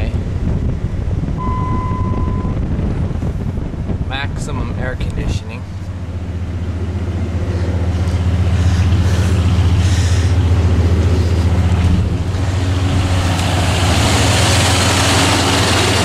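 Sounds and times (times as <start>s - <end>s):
truck engine idling: 5.5s - 16.0s.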